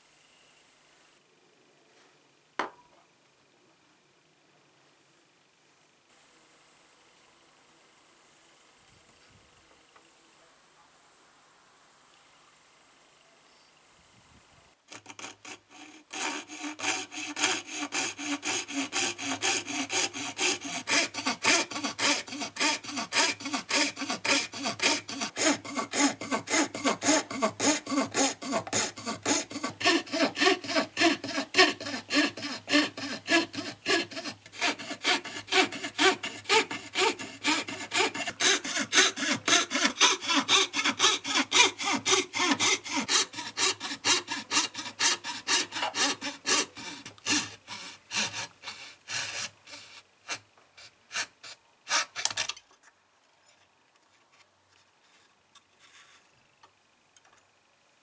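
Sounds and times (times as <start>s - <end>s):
hand saw rasping through wood: 14.9s - 52.4s.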